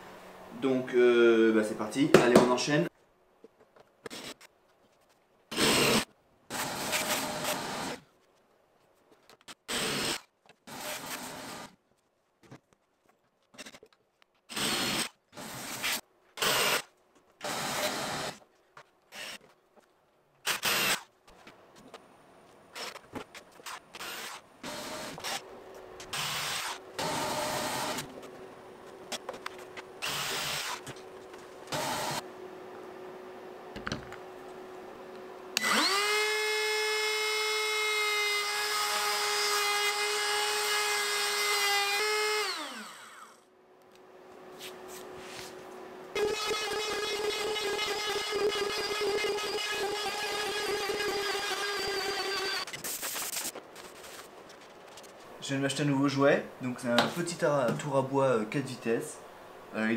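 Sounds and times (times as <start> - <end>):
power drill boring into wood: 20.5 - 21.0, 26.1 - 28.1, 30.0 - 30.8, 35.6 - 43.4, 46.2 - 52.7.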